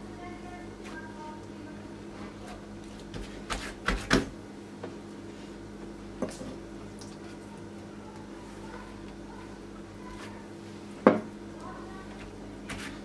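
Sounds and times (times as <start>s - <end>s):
steady low hum: 0.0s - 13.0s
hands working dough on a board: 2.3s - 4.4s, 10.0s - 11.3s, 12.0s - 13.0s.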